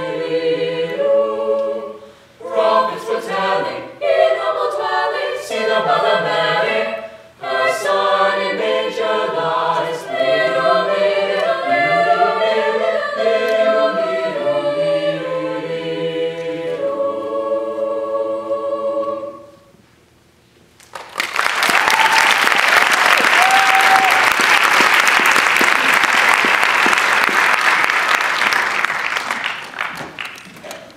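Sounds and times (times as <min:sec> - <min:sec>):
choir singing in harmony: 0:00.0 - 0:19.8
audience applauding: 0:20.8 - 0:30.7.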